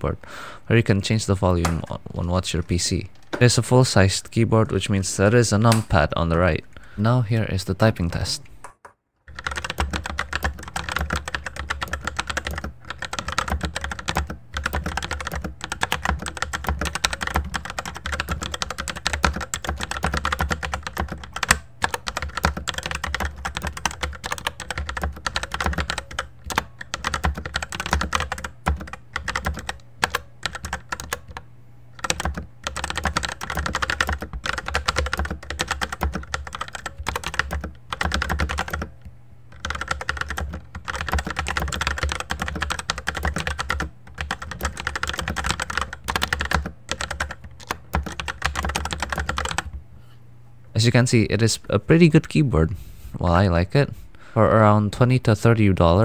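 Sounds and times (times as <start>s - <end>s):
fast mechanical keyboard typing: 9.3s - 31.4s, 32.0s - 38.9s, 39.5s - 49.8s.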